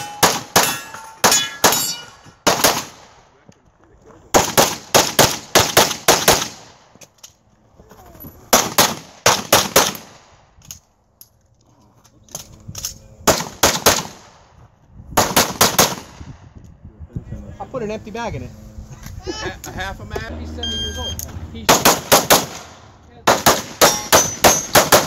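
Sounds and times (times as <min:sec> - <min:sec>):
pistol shots: 0:00.0 - 0:03.2, 0:04.3 - 0:06.8, 0:08.5 - 0:10.2, 0:13.2 - 0:14.3, 0:15.2 - 0:16.2, 0:21.7 - 0:25.0.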